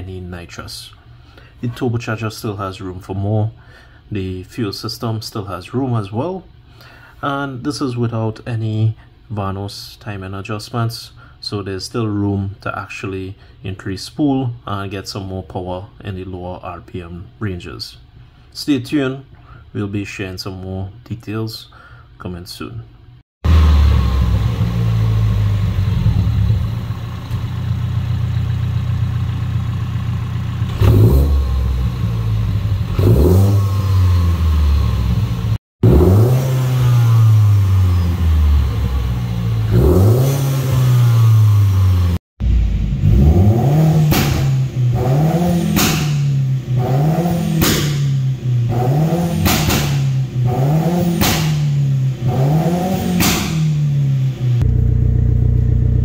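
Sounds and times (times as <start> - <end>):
car engine revving: 23.4 - 56.0.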